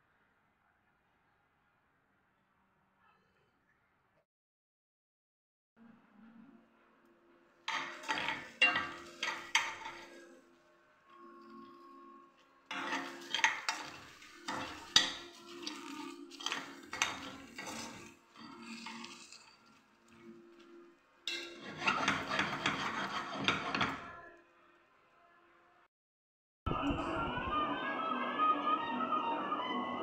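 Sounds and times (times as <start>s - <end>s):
seeds rattling in pan: 7.7s - 10.2s, 12.7s - 20.2s
metal spoon scraping pan: 7.7s - 10.4s, 12.7s - 24.2s.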